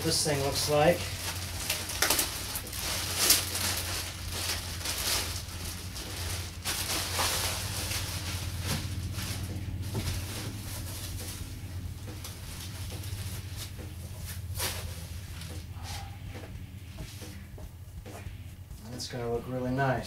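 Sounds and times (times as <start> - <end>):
plastic bag crinkling: 0.0 - 15.2
steady low hum: 0.0 - 20.0.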